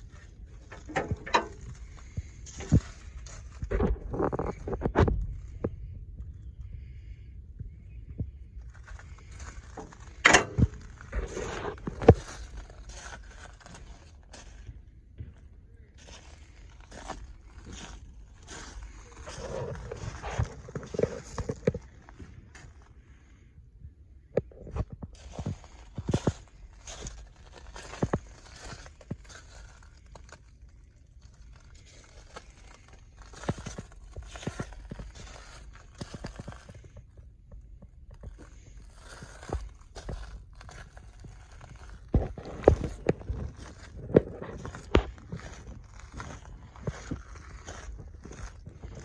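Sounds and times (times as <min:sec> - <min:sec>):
footsteps crunching on gravel: 0:00.0 - 0:05.7, 0:08.7 - 0:22.8, 0:24.6 - 0:49.0.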